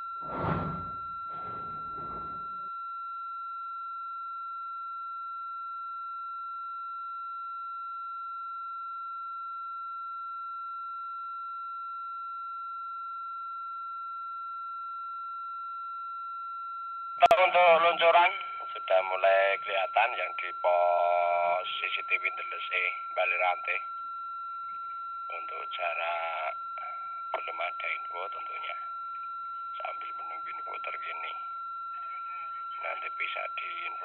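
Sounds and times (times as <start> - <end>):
steady electronic tone: 0.0 - 2.7
radio static burst: 0.2 - 2.6, 17.3 - 19.4
fainter higher tones: 0.2 - 2.7.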